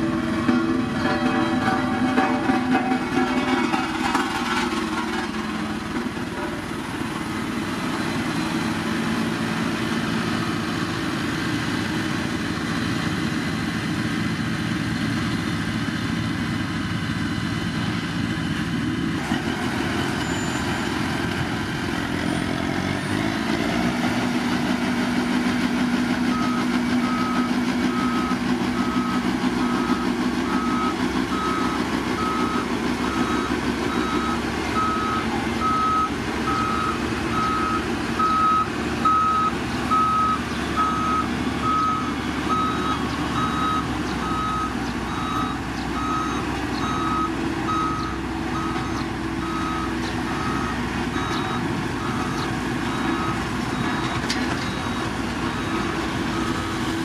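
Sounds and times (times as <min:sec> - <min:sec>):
diesel engine revving: 0:00.0 - 0:57.0
back-up alarm beeping: 0:26.3 - 0:56.9.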